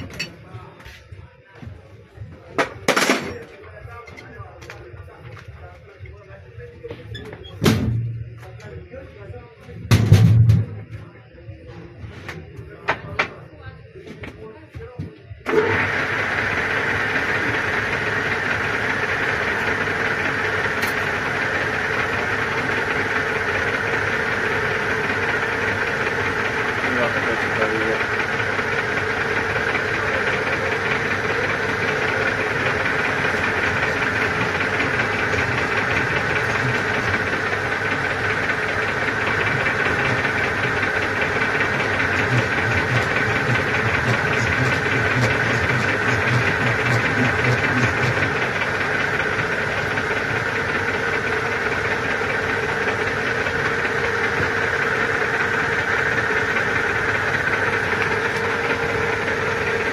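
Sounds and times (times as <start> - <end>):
metal lathe whirring and rattling: 15.4 - 59.9.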